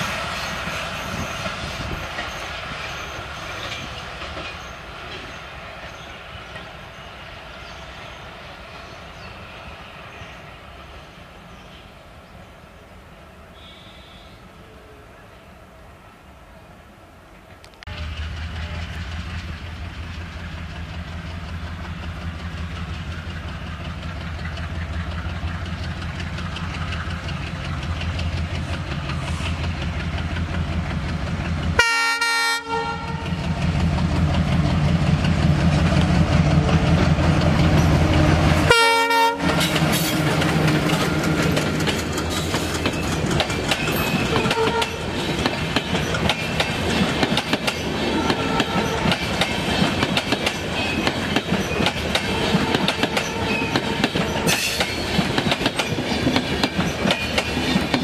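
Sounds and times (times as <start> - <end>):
train wheels clattering on rails: 0.0 - 7.9, 17.9 - 31.8, 33.2 - 58.0
diesel locomotive engine: 0.0 - 58.0
train horn blasts: 17.9 - 19.1, 31.8 - 33.4, 38.1 - 40.1, 44.3 - 45.1, 48.0 - 49.2, 52.1 - 54.7.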